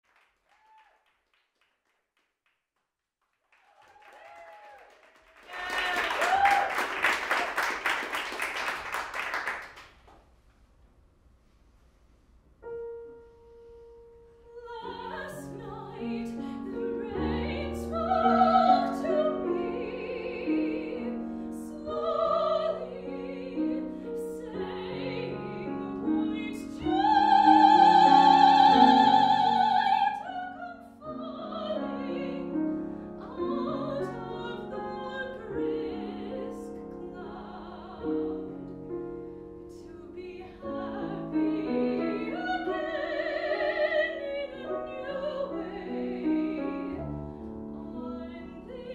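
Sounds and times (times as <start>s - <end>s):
grand piano: 5.6s - 48.9s
woman singing classically: 14.5s - 32.6s, 33.2s - 38.5s, 39.8s - 47.0s.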